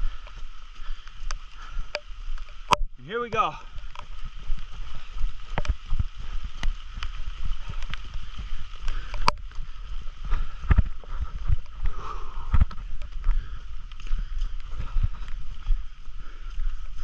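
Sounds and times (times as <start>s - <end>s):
running footsteps on dirt: 0.0s - 17.0s.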